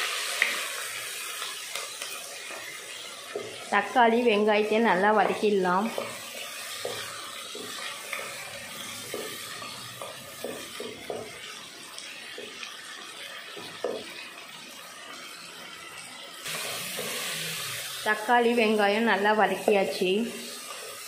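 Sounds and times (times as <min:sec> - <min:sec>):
food sizzling in hot oil: 0:00.0 - 0:21.0
wooden spatula scraping a pot: 0:05.2 - 0:11.6.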